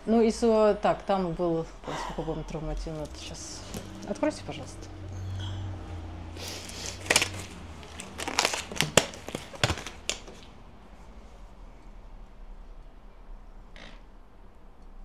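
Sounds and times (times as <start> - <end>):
gloves peeled off snapping: 6.4 - 10.5.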